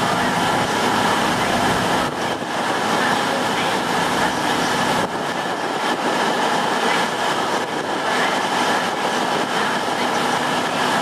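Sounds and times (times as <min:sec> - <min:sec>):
diesel train rumbling: 0:00.0 - 0:11.0.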